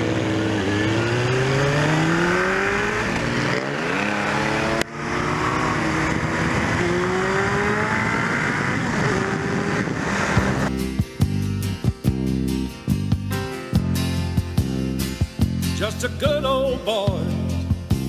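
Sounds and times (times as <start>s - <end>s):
motorcycle engine accelerating: 0.0s - 11.2s.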